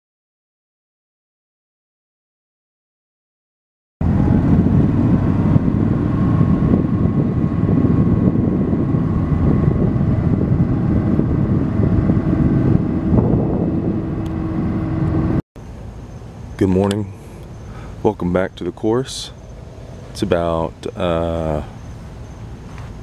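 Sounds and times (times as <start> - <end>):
wind rumble on microphone: 4.0 - 15.4
vehicle motor running: 4.0 - 16.1, 19.3 - 23.0.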